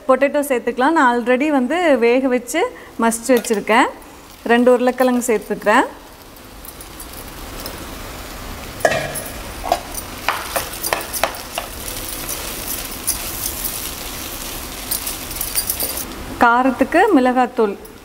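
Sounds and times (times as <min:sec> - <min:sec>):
onions sizzling in frying pan: 0:01.2 - 0:18.0
spatula scraping and knocking pan: 0:08.9 - 0:12.0.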